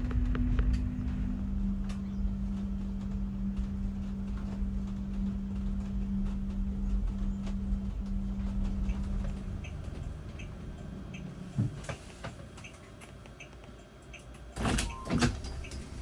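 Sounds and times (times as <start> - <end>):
bus motor hum: 0.0 - 16.0
powered door opening: 14.6 - 16.0.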